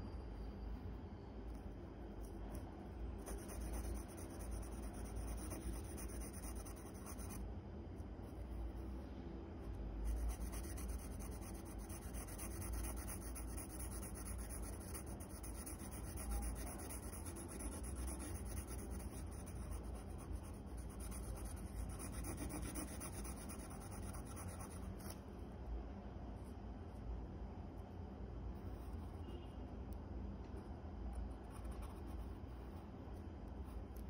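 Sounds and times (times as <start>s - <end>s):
pencil scratching on paper: 3.2s - 7.4s, 10.0s - 25.2s.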